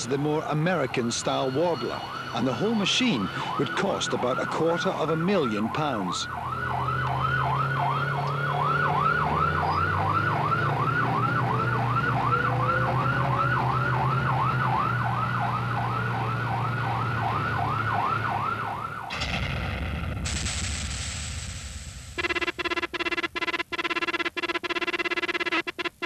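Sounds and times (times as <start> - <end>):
warbler siren wailing: 0.0 - 19.1, 22.2 - 26.0
vehicle engine drone: 0.0 - 19.4.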